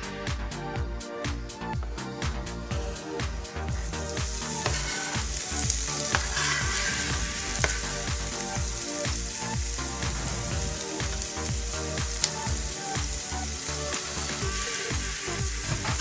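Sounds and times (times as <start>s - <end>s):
background music with beat: 0.0s - 16.0s
onion sizzling in hot oil: 2.9s - 16.0s.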